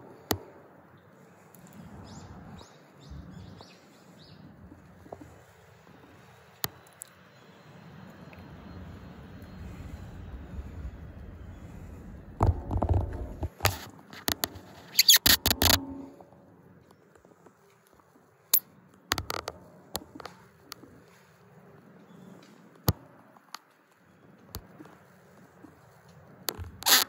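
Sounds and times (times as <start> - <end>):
smartphone handling clicks and scrapes: 12.5 - 16.2.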